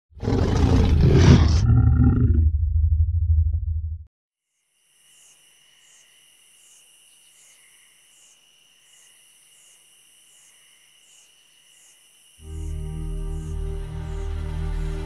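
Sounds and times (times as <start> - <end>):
insects trilling: 4.4 - 14.3
pulsing insect chirp: 4.4 - 14.9.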